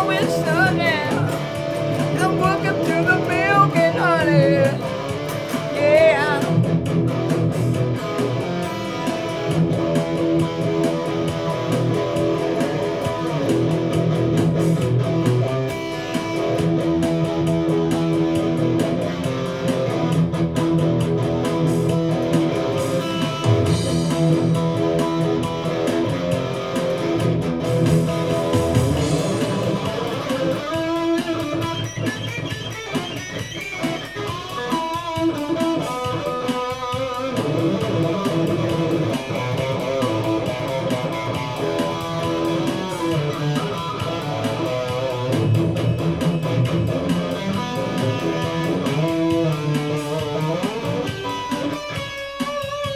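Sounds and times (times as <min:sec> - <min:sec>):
drum machine beat: 0:00.0 - 0:52.9
electric guitar rock playing: 0:00.0 - 0:52.9.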